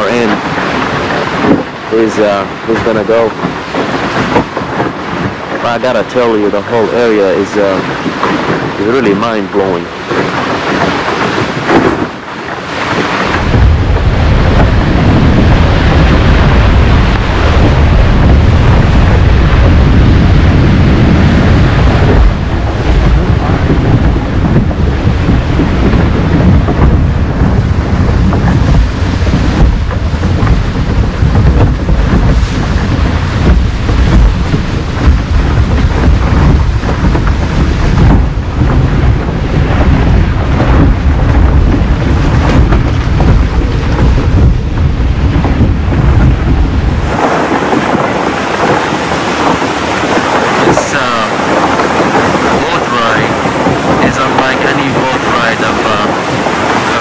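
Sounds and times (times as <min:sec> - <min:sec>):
boat moving through ice: 0:00.0 - 0:57.0
wind buffeting microphone: 0:00.0 - 0:57.0.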